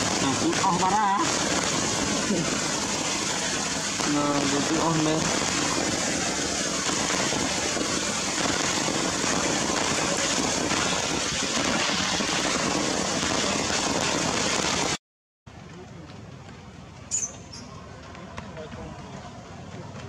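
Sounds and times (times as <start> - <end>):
heavy rain falling: 0.0 - 15.0.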